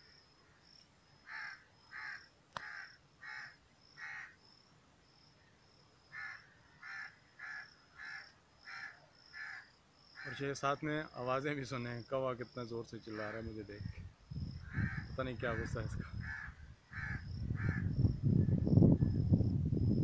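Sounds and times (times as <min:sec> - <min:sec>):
crow cawing: 0:01.2 - 0:04.4, 0:06.1 - 0:10.4, 0:14.6 - 0:18.0.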